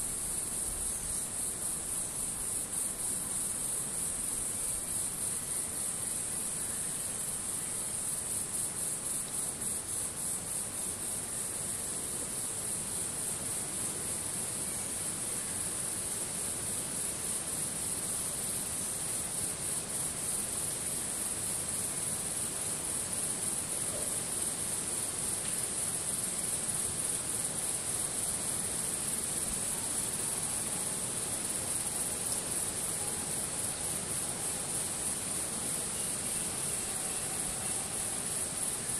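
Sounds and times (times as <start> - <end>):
insects trilling: 0.0 - 38.9.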